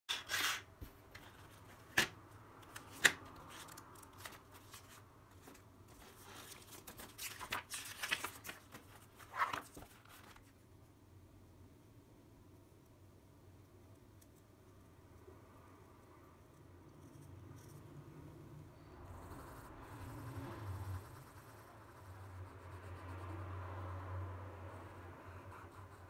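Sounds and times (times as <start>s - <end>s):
paper rustling: 2.7s - 10.5s.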